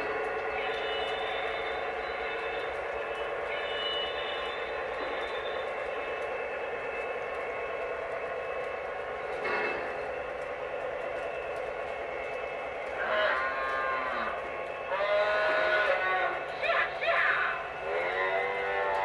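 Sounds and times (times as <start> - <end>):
model train running on track: 0.0 - 19.0.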